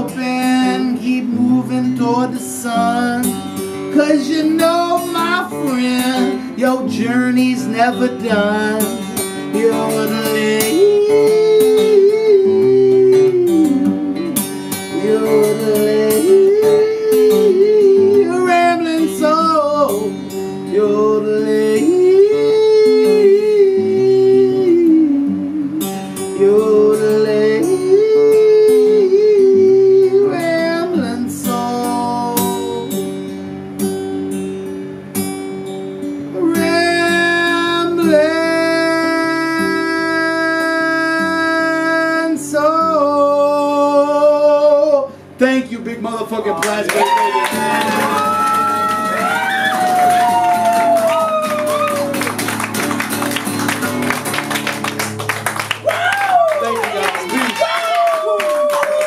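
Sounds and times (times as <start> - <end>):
man singing yodel-style melody: 0.0 - 33.2, 36.3 - 49.5
acoustic guitar strumming: 0.0 - 58.8.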